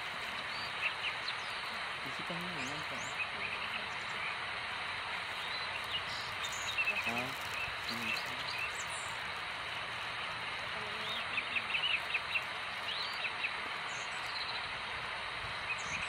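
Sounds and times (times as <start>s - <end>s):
small birds chirping: 0.0s - 16.0s
steady background hiss: 0.0s - 16.0s.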